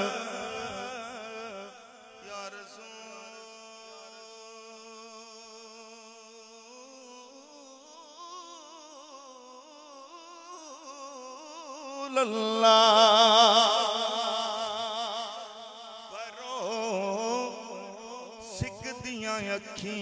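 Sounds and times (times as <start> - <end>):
man singing long note: 0.0 - 5.9.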